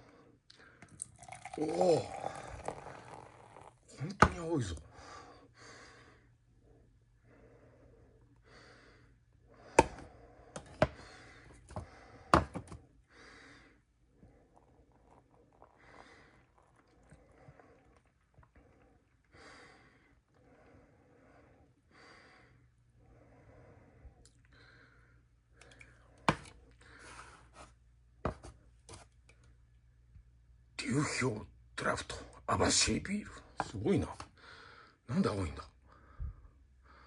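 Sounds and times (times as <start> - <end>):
faint room sound: 0.0 - 37.0
objects knocking on hard surface: 11.7 - 12.8.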